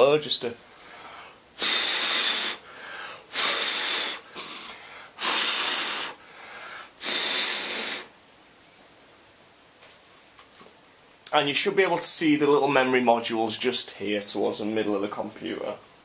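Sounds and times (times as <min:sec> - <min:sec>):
person blowing puffs of air: 0:00.7 - 0:08.2.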